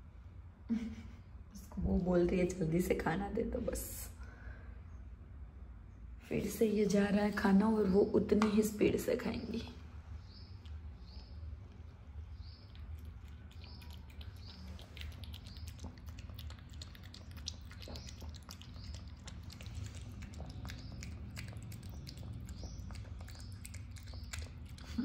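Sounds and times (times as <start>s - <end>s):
dog chewing food: 12.5s - 25.0s.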